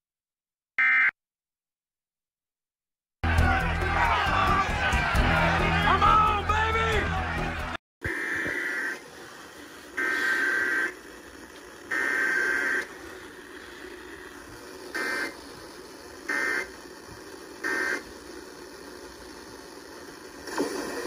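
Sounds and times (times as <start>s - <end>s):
raspy data bursts from radio: 8.0s - 9.3s, 9.9s - 11.2s, 11.9s - 13.1s, 14.9s - 15.5s, 16.2s - 16.9s, 17.6s - 18.2s.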